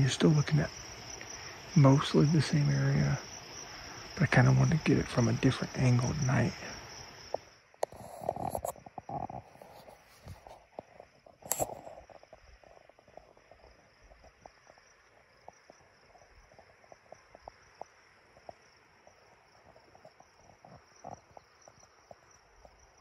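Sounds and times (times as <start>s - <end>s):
steady high hiss: 0.0s - 8.7s.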